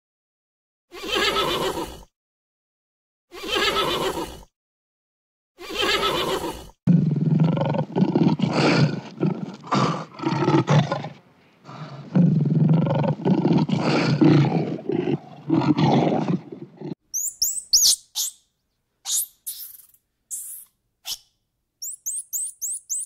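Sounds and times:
lion roaring: 6.9s - 17.0s.

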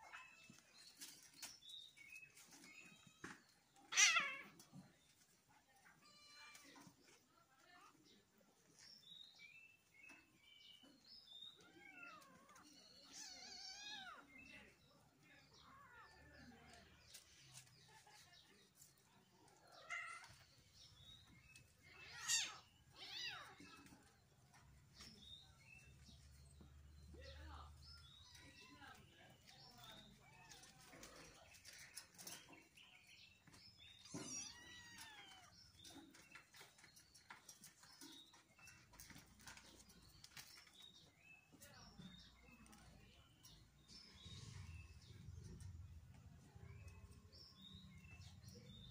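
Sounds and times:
kittens squeaking and mewing: 0.0s - 7.2s, 9.8s - 27.2s, 27.9s - 48.9s.

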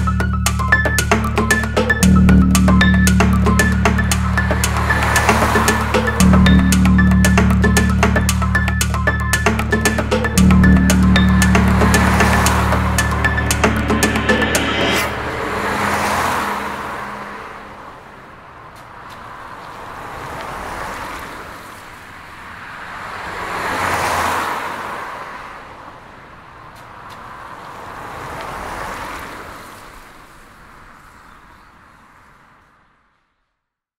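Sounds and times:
music: 0.0s - 15.5s
cars passing on a street: 0.0s - 33.4s.

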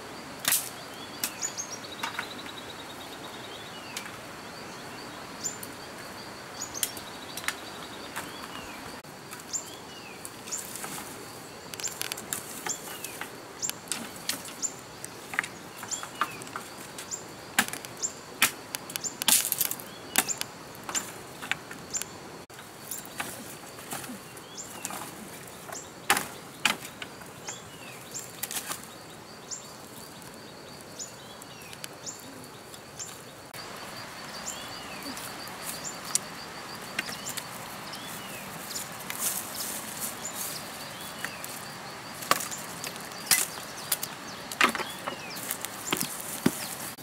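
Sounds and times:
high insect trill: 0.0s - 47.0s
bamboo sticks cracking and snapping: 0.4s - 1.4s, 10.2s - 27.2s, 28.2s - 28.9s, 38.8s - 40.5s, 41.2s - 47.0s.

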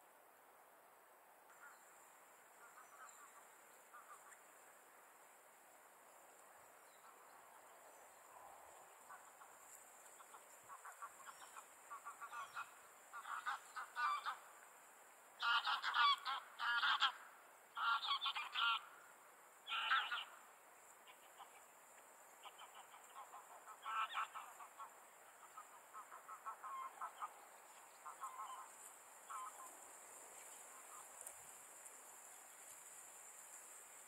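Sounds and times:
cranes trumpeting calls: 2.5s - 4.4s, 8.9s - 14.5s, 15.4s - 19.0s, 19.6s - 20.4s, 22.4s - 31.3s.

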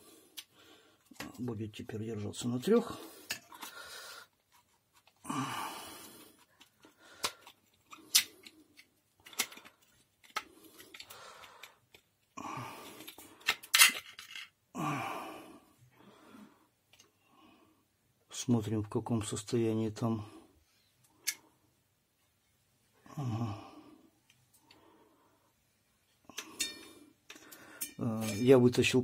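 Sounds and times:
rubbing of parts: 3.2s - 5.2s, 6.3s - 12.1s, 12.9s - 14.5s
plastic and metal parts clicking: 6.6s - 12.1s, 13.0s - 14.5s.

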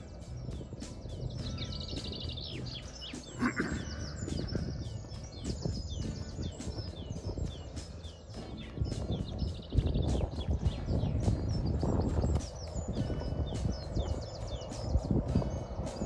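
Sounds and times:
songbirds chirping and trilling: 0.0s - 16.0s
louder lower bird call: 2.8s - 4.9s.

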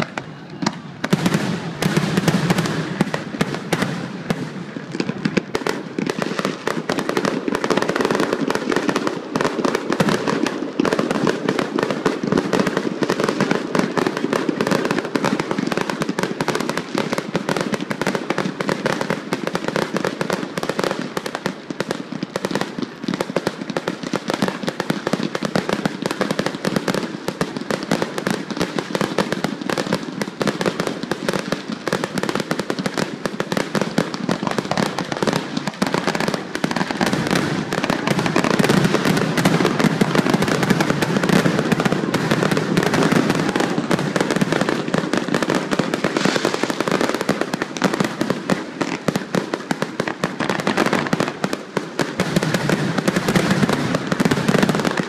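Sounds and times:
fireworks barrage: 0.0s - 55.0s.

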